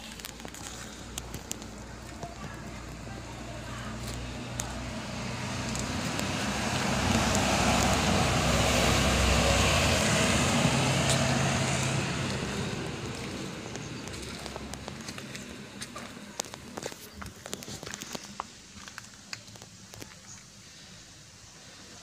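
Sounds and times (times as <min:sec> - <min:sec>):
motor vehicle passing by: 0:00.2 - 0:17.2.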